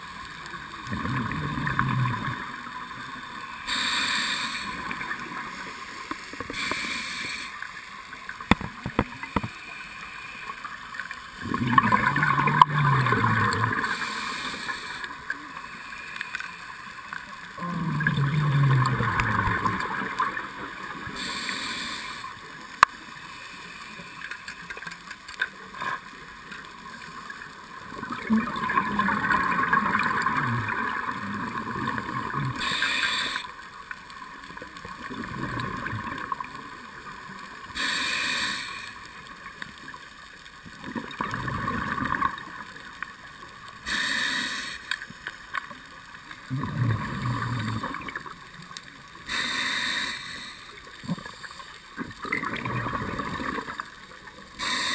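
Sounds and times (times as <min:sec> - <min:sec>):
diver exhaling bubbles: 0:00.8 - 0:02.6, 0:11.4 - 0:15.0, 0:17.6 - 0:21.5, 0:28.0 - 0:33.3, 0:40.9 - 0:42.5, 0:46.5 - 0:48.3, 0:52.0 - 0:53.8
regulator hissing inhalation: 0:03.6 - 0:05.7, 0:06.4 - 0:07.6, 0:13.7 - 0:15.2, 0:21.1 - 0:22.4, 0:32.5 - 0:33.6, 0:37.8 - 0:39.0, 0:43.8 - 0:45.0, 0:49.3 - 0:50.8, 0:54.6 - 0:54.9.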